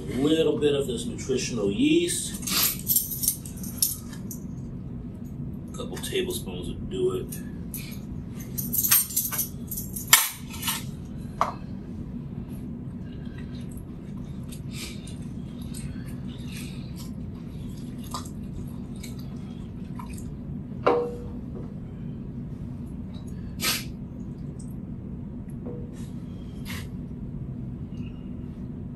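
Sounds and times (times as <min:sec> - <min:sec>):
steady low hum: 0:00.0 - 0:28.9.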